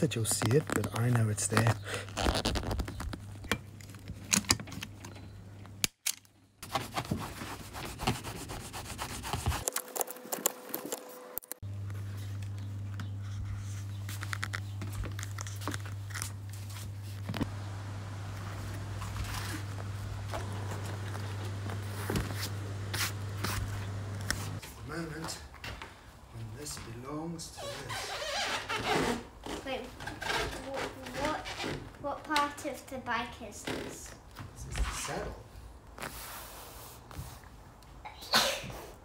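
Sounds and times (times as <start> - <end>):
hands rubbing vinyl upholstery: 0.2 - 3.4, 6.6 - 10.0
steady low hum: 6.5 - 27.6.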